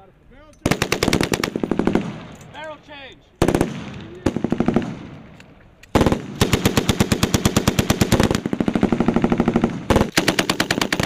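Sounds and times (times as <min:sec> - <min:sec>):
machine gun automatic bursts: 0:00.6 - 0:02.2, 0:03.4 - 0:05.0, 0:05.9 - 0:11.0.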